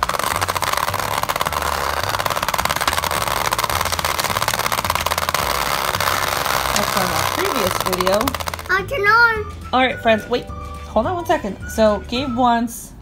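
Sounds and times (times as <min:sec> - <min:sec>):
toy motor rattling buzz: 0:00.0 - 0:09.0.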